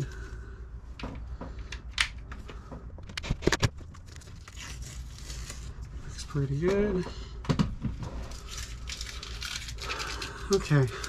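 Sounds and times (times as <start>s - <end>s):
tape being pulled and torn: 3.1s - 5.9s, 8.2s - 10.6s.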